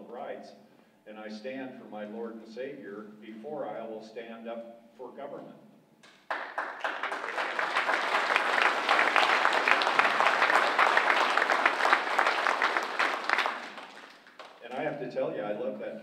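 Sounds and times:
audience applauding: 0:06.0 - 0:14.7.

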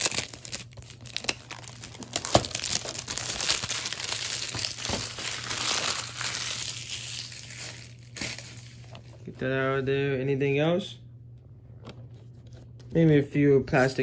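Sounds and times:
plastic wrap crinkling: 0:00.0 - 0:09.3.

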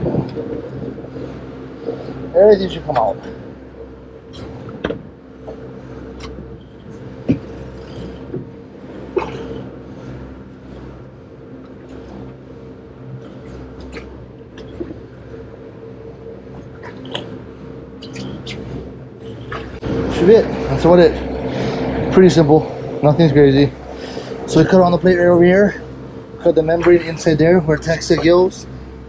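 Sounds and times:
outboard engines droning: 0:00.0 - 0:29.0
wet squelching and clicks: 0:16.5 - 0:17.3.

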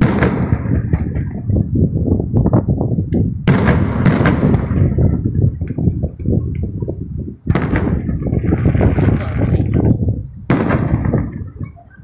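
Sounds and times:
sharp loud firework bangs: 0:00.0 - 0:01.7, 0:03.1 - 0:06.7, 0:07.5 - 0:11.7
fireworks booming: 0:00.0 - 0:12.0.

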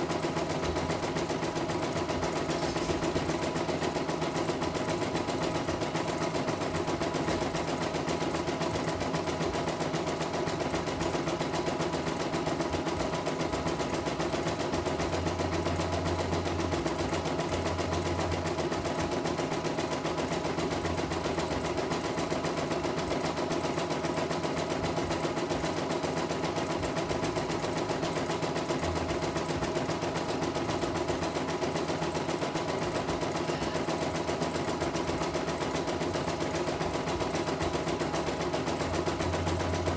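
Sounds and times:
embroidery machine stitching: 0:00.0 - 0:39.9.

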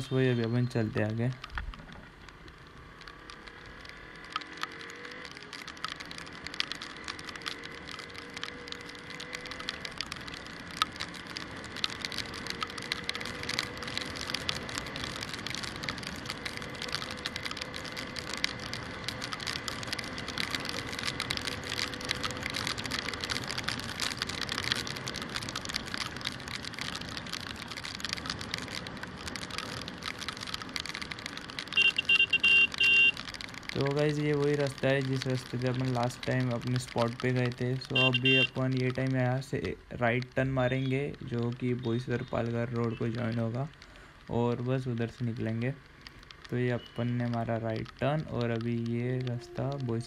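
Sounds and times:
rain crackling on camera housing: 0:00.0 - 0:50.0
beeps: 0:38.0 - 0:38.5.

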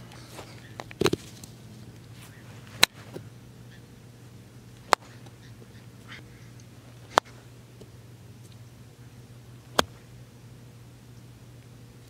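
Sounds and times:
golf club striking balls: 0:04.8 - 0:05.7, 0:06.6 - 0:07.9, 0:09.7 - 0:10.1.

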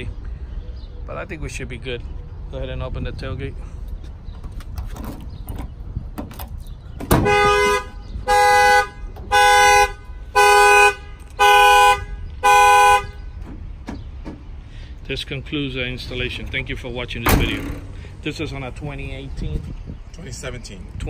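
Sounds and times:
car horn honking: 0:07.1 - 0:13.5.

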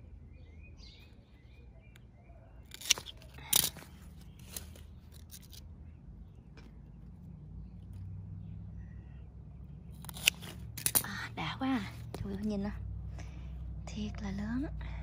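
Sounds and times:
shear blades clicking: 0:02.7 - 0:05.6, 0:10.0 - 0:11.2
pruning shears snipping stems: 0:02.7 - 0:05.7, 0:09.9 - 0:12.6.

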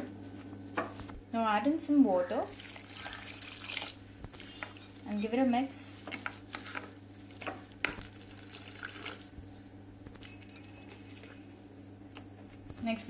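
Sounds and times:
steady low hum: 0:00.0 - 0:13.0
spoon stirring wet batter: 0:02.5 - 0:09.4
spoon scraping glass bowl: 0:04.4 - 0:05.4.

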